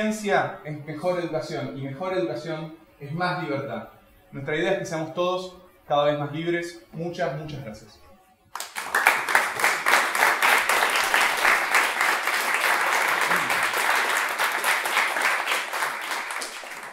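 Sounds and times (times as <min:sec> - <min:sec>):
audience applauding: 0:08.6 - 0:16.9.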